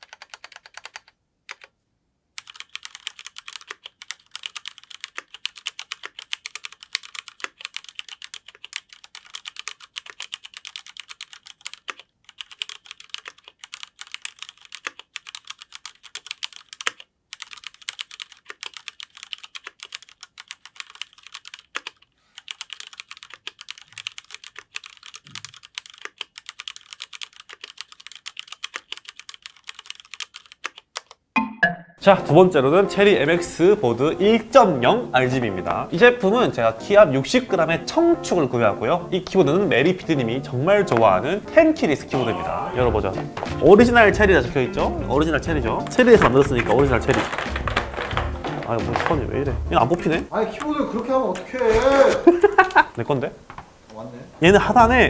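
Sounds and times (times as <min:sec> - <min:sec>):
mechanical keyboard typing: 0:00.0 - 0:01.7, 0:02.4 - 0:31.2.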